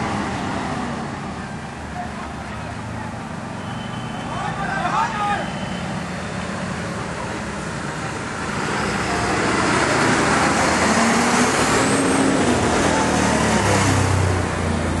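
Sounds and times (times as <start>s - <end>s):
fire engine driving past: 5.1s - 15.0s.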